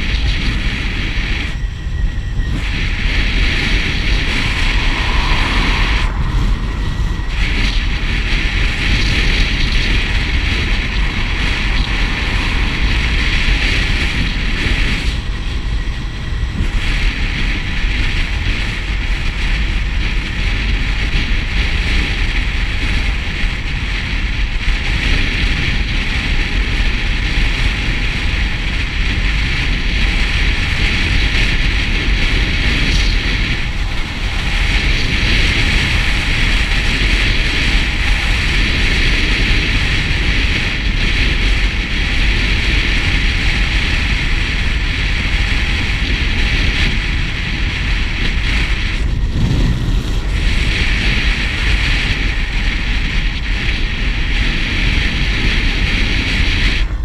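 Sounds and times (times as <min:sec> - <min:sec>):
road noise: 0:00.0 - 0:57.0
wind rushing over microphone: 0:00.0 - 0:57.0.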